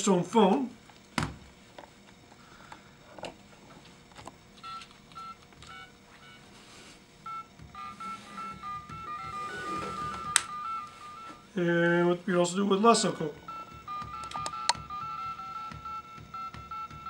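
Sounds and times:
keypad beeps with echo: 0:13.5 - 0:17.0.

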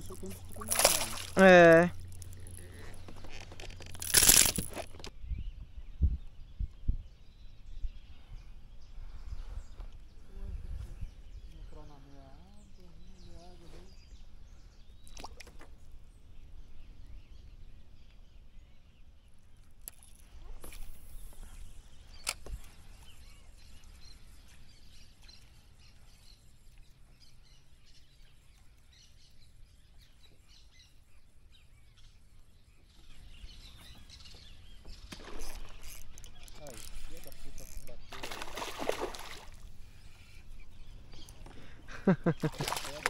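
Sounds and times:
faint birds chirping: 0:00.0 - 0:43.0.

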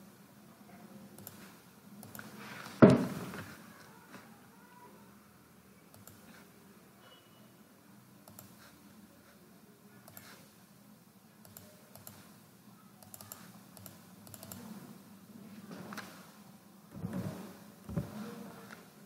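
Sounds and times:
computer mouse and keyboard clicks: 0:01.2 - 0:02.4, 0:05.9 - 0:06.4, 0:08.2 - 0:08.8, 0:10.0 - 0:10.5, 0:11.4 - 0:12.4, 0:13.0 - 0:14.8.

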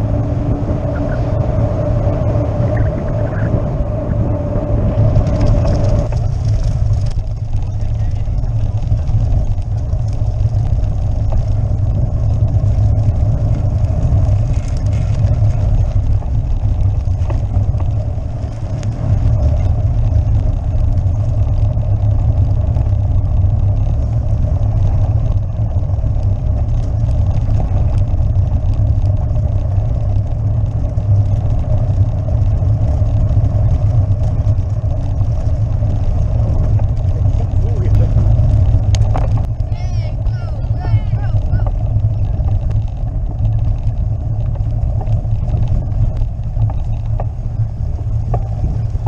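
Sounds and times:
bike rattling over cobblestones: 0:00.0 - 0:49.0.

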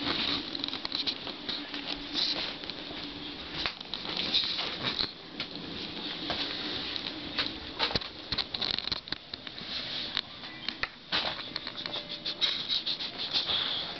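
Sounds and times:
puppies shuffling on bedding: 0:00.0 - 0:08.0.

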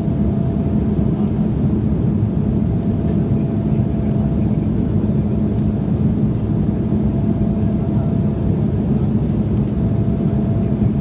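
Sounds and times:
jet engine drone: 0:00.0 - 0:11.0.

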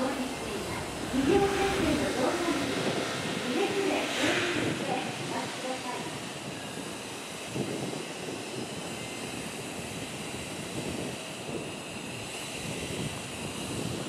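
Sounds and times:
steady hiss: 0:00.0 - 0:11.6
diesel train engine rumble: 0:00.0 - 0:14.0.

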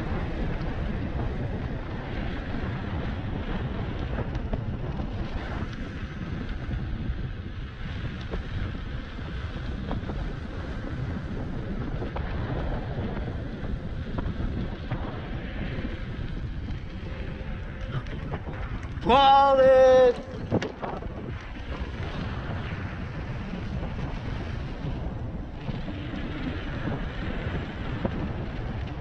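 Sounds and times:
road rumble: 0:00.0 - 0:29.0
wind buffeting microphone: 0:00.0 - 0:29.0.

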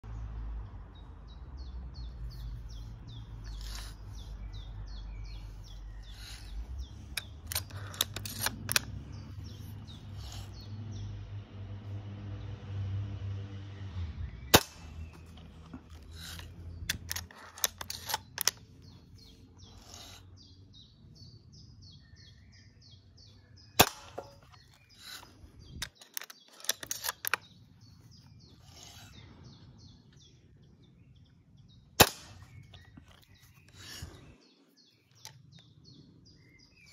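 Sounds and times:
faint birds chirping: 0:00.0 - 0:36.9
metallic clicks of rifle cocking: 0:06.0 - 0:10.5, 0:14.6 - 0:19.0, 0:23.8 - 0:27.6
air rifle shots: 0:14.5 - 0:15.4, 0:23.8 - 0:24.5, 0:32.0 - 0:32.8.

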